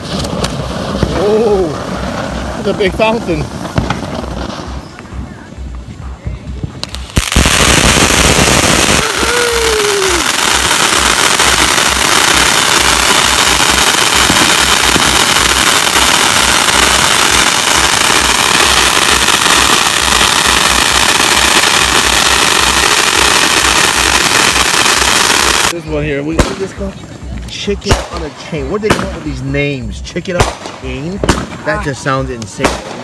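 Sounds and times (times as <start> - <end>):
firework rushing hiss: 0.0 - 5.9, 6.6 - 25.8
firework crackling: 0.0 - 33.0.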